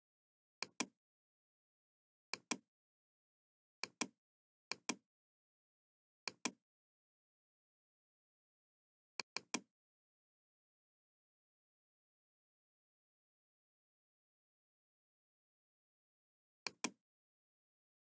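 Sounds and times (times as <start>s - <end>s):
computer mouse clicking: 9.2s - 9.7s, 16.7s - 17.0s.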